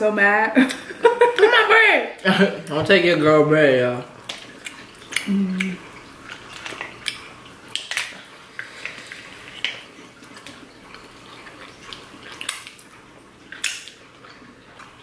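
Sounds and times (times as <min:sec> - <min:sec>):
wet eating sounds: 0:02.2 - 0:15.0
crab shells cracking: 0:06.4 - 0:09.0, 0:11.9 - 0:14.1.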